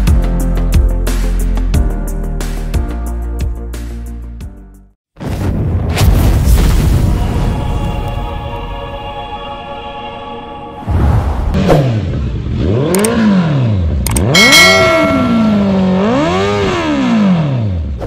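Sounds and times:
motorcycle engine revving: 11.6s - 18.0s.

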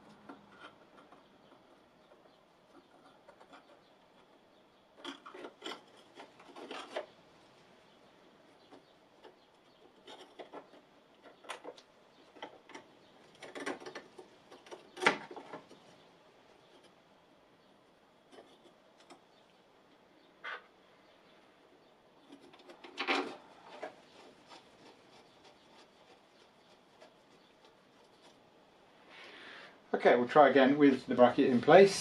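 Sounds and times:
gloved hands rubbing and scraping: 21.8s - 29.4s.

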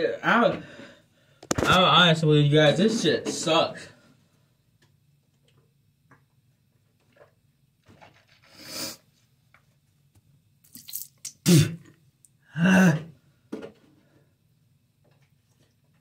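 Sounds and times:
man coughing: 11.4s - 11.9s, 12.6s - 13.1s.

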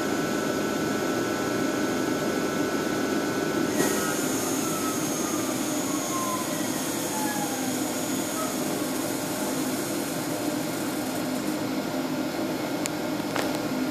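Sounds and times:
machine whir: 3.7s - 11.7s.

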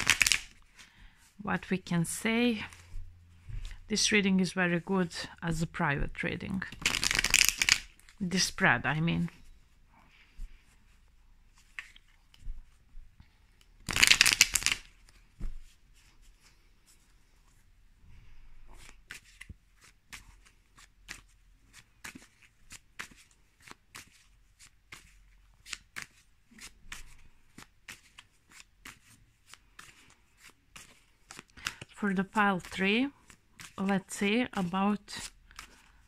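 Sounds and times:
cards clicking softly: 0.0s - 0.5s, 6.8s - 8.2s
cards being shuffled: 0.0s - 0.9s, 5.6s - 9.5s, 11.5s - 12.8s, 13.6s - 16.6s, 18.7s - 36.0s.

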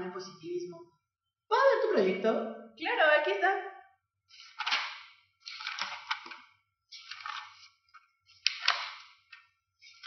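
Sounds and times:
paper pages rustling: 4.4s - 10.0s.

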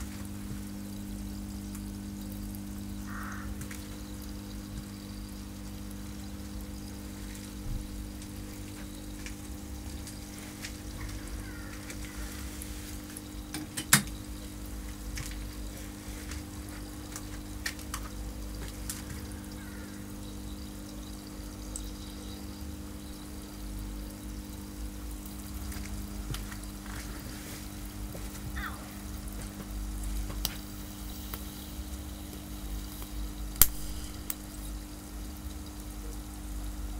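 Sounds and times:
salt water bubbling and fizzing: 0.0s - 36.9s
steady electrical hum: 0.0s - 36.9s
sharp electrical snap: 32.3s - 34.9s.

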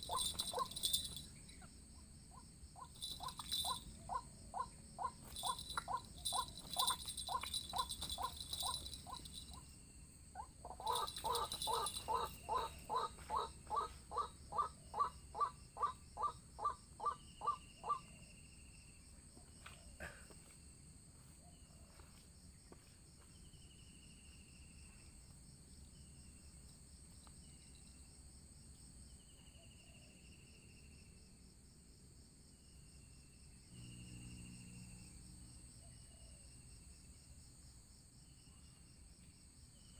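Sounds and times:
waterhen harsh repeated call: 0.0s - 1.2s, 10.7s - 18.0s
insects droning: 0.0s - 39.9s.

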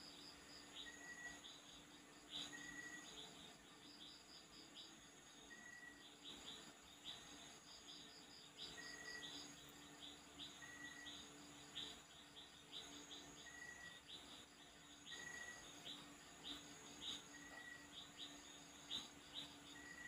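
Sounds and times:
insect trill: 0.0s - 20.0s
birds chirping: 0.6s - 20.0s.

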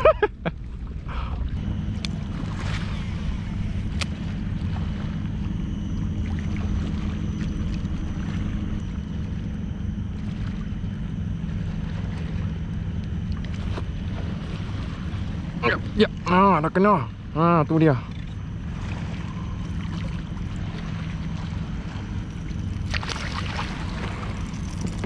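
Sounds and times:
water against plastic kayak hull: 18.0s - 25.0s.

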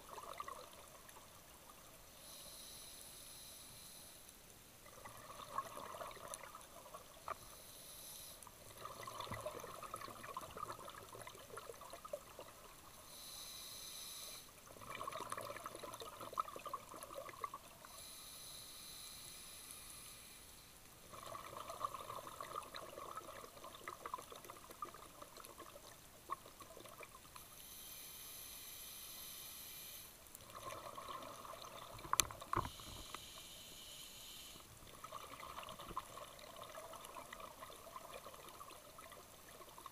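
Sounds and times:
regulator hiss on inhale: 2.1s - 4.5s, 7.3s - 8.7s, 12.8s - 14.7s, 17.8s - 20.9s, 27.4s - 34.8s
bubbling exhaled air: 8.7s - 12.6s, 14.7s - 17.6s, 21.1s - 27.2s.

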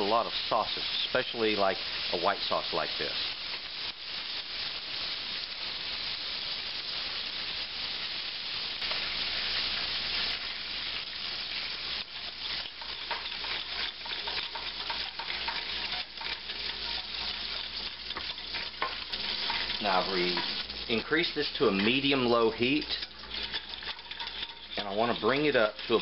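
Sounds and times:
roux sizzling in a saucepan: 0.0s - 26.0s
whisk scraping a pan: 11.5s - 26.0s.

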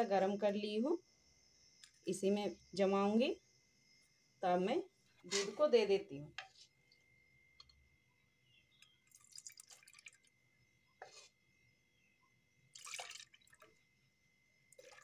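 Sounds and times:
milk splashing and dripping: 8.8s - 10.4s, 12.7s - 13.8s, 14.7s - 15.0s.

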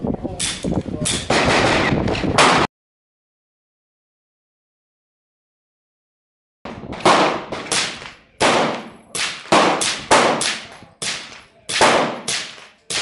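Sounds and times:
suppressed pistol shots: 7.0s - 13.0s.

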